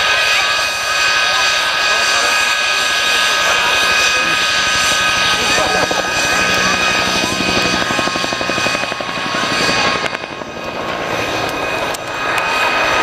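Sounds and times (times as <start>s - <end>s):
high whine: 2.1s - 13.0s
helicopter rotors thudding: 2.9s - 13.0s.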